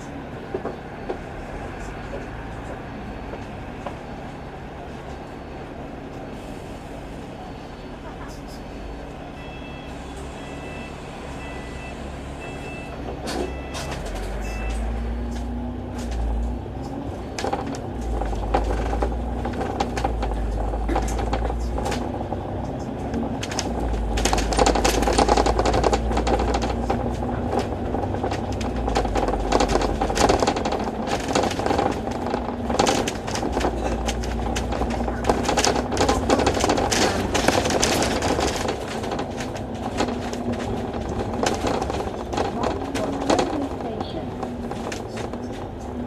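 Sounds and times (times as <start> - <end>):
bus engine rumbling: 0.0 - 46.0
short beeps: 7.4 - 15.1
interior rattling: 13.1 - 46.0.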